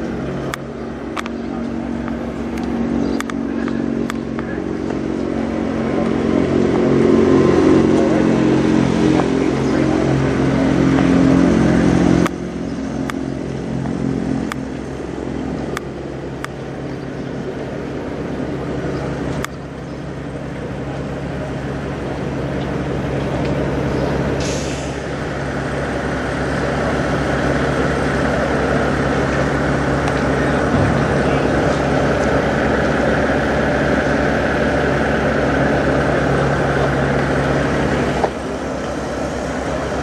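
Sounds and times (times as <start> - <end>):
diesel truck engine idling: 0.0 - 40.0
air brake hiss: 24.4 - 25.0.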